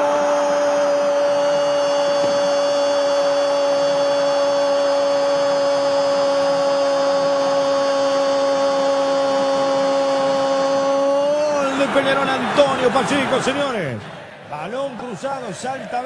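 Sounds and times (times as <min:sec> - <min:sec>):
stadium crowd roar: 0:00.0 - 0:16.0
commentator shouting goal: 0:11.0 - 0:16.0.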